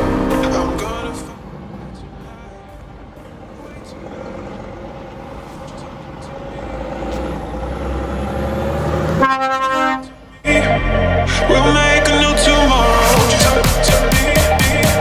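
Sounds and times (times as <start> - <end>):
truck diesel engine: 0.0 - 15.0
truck air horn blast: 9.0 - 10.4.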